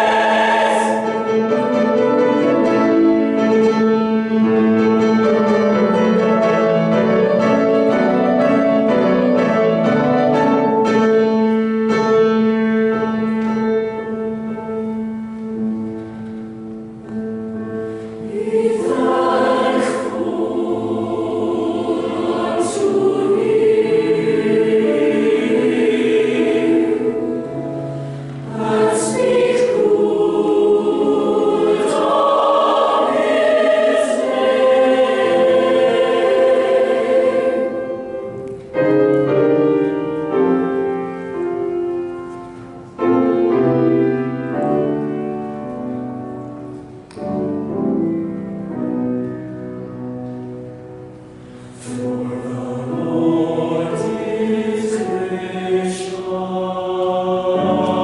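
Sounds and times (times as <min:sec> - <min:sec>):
mixed choir singing in harmony: 0:00.0 - 0:15.7, 0:17.5 - 0:48.8, 0:51.0 - 0:58.0.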